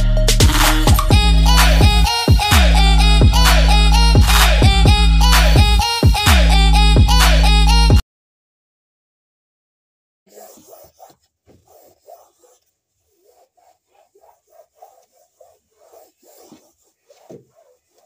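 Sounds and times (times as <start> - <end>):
cloth rubbing on hard floor: 10.3 - 18.0.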